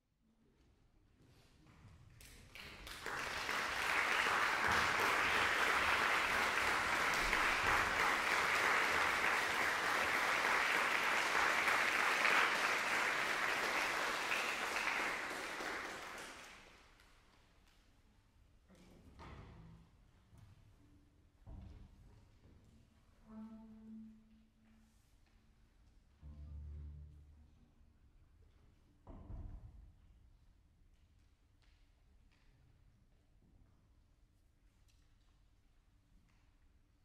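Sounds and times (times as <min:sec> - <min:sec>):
audience applauding: 0:02.5 - 0:16.9.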